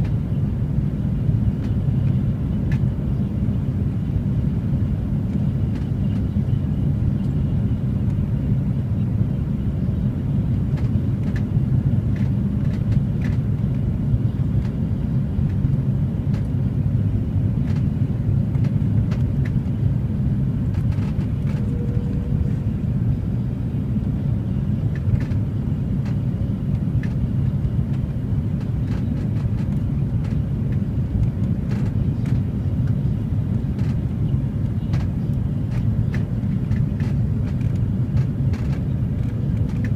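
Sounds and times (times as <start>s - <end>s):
aircraft cabin engine rumble: 0.0s - 39.9s
faint ticks and rattles: 35.7s - 39.9s.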